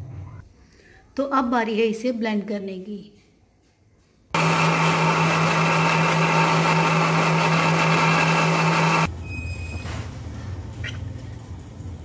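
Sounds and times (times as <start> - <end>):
blender running: 4.4 - 9.1.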